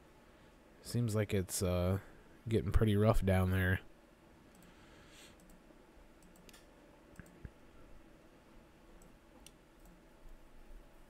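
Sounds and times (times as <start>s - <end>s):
faint mouse clicks: 4.5s - 7.6s, 9.0s - 10.4s.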